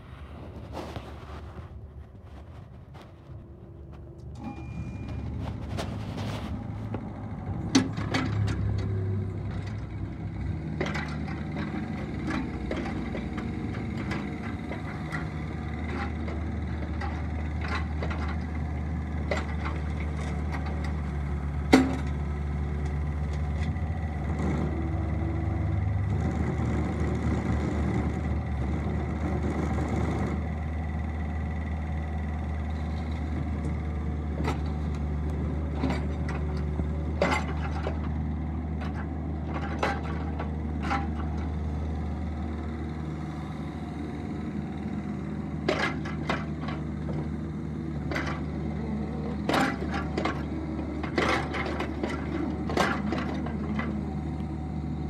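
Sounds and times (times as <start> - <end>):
tracks clanking over gravel: 0.0 - 9.8, 10.8 - 23.9, 32.8 - 41.8, 45.6 - 47.4, 48.0 - 54.2
diesel engine running: 0.0 - 55.0.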